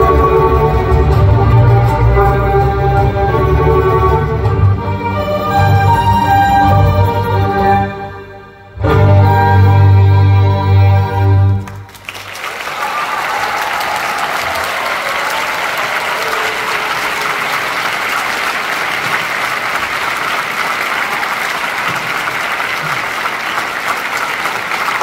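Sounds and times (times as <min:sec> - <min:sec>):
audience applauding: 0:11.6 - 0:25.0.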